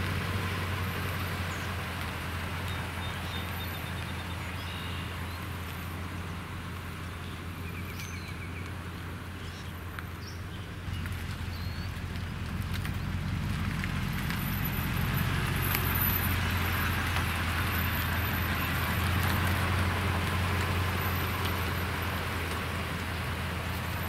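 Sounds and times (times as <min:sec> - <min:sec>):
truck engine running low: 0:00.0 - 0:24.0
small birds chirping: 0:02.6 - 0:06.4, 0:07.0 - 0:13.2.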